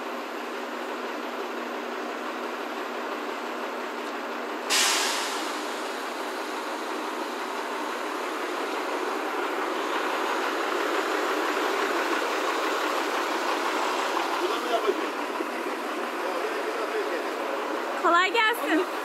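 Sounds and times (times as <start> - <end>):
crane mechanical noise: 0.1 - 18.0
sharp hiss: 4.7 - 6.8.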